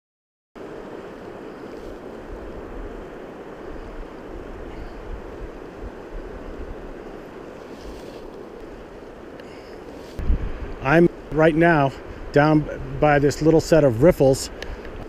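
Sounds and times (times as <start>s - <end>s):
river water rushing: 0.6s - 12.5s
wind buffeting microphone: 0.6s - 15.0s.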